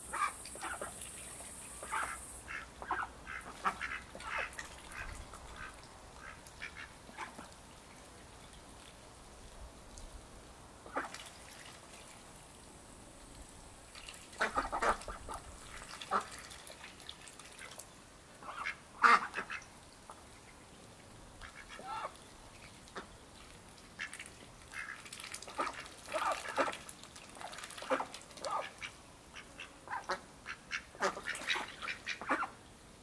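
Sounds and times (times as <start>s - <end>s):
ducks quacking: 1.8s - 7.4s, 14.4s - 15.4s, 18.4s - 19.6s, 21.4s - 22.2s, 27.8s - 32.6s.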